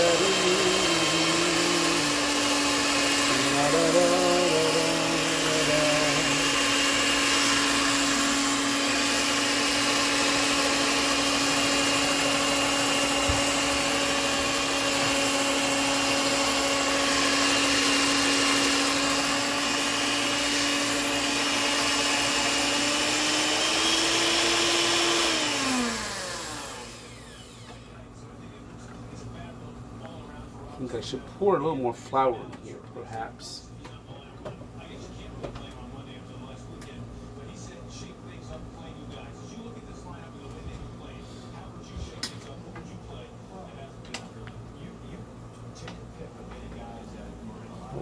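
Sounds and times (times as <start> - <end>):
electric mixer motor hum: 0.0 - 28.0.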